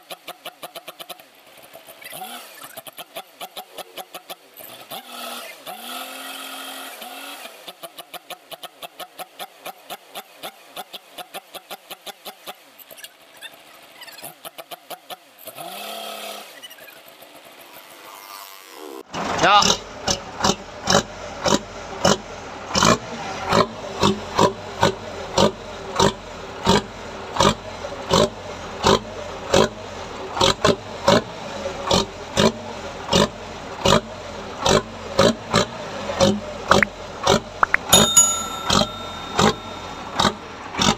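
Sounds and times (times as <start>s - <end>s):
bright ringing chime: 37.6s - 40.5s.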